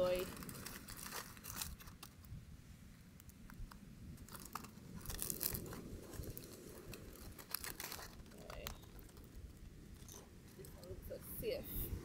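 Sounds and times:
foil packet crinkling: 0.0s - 2.3s, 4.2s - 10.2s.

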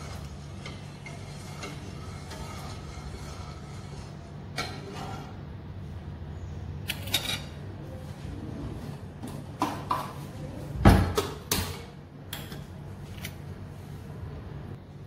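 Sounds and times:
utensils and cookware clicking: 0.0s - 5.3s, 6.8s - 7.6s.

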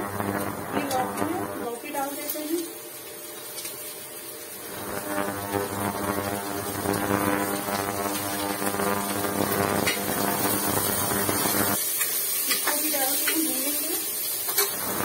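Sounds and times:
induction cooktop buzzing hum: 0.0s - 15.0s.

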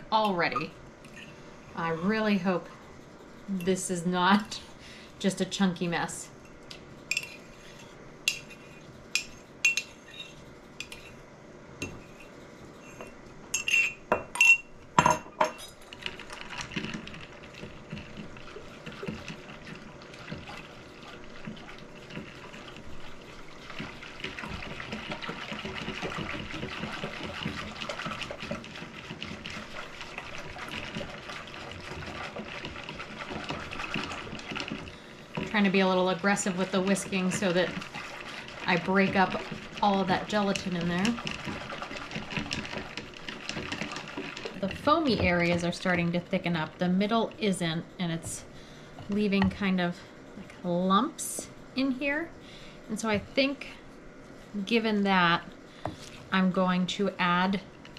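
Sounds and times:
whisk swishing in bowl: 2.0s - 4.6s, 15.8s - 49.1s
glassware clinking against bowl: 13.6s - 15.7s.

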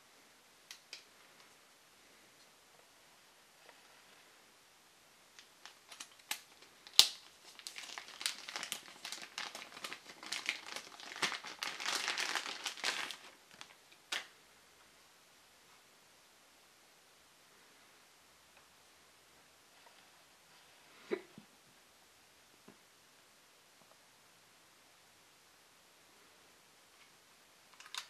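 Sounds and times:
plastic bag crinkling: 5.4s - 14.3s
sharp plastic clicks: 27.7s - 28.0s.

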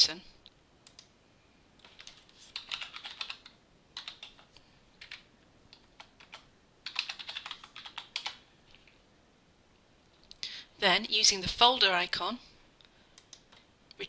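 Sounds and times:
computer keyboard typing: 0.8s - 1.1s, 1.8s - 8.9s, 13.2s - 13.7s.

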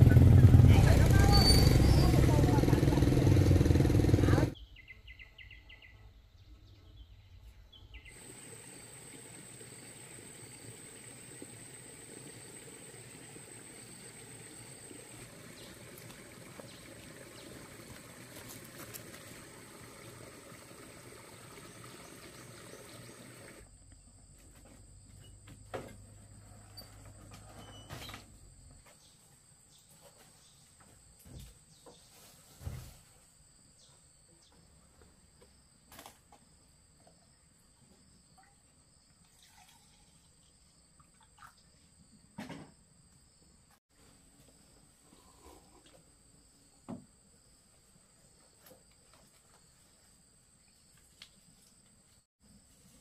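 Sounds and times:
stream trickling between rocks: 8.1s - 23.6s, 39.2s - 41.7s.

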